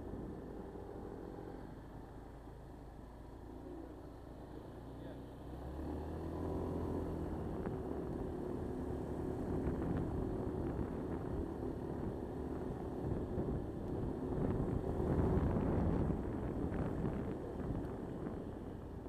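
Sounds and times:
wind rushing over microphone: 9.3 - 19.0.

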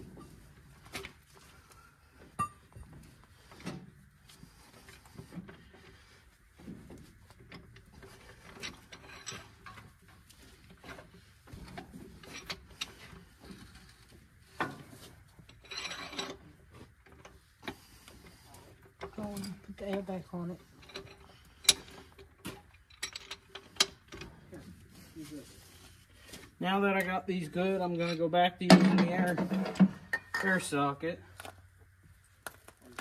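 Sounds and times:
hand tools clinking on metal: 15.4 - 16.5, 27.8 - 30.7.

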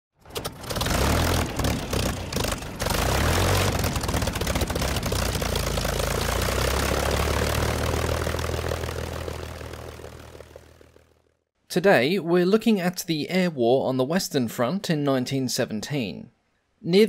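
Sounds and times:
propeller aircraft engine: 0.2 - 11.5.

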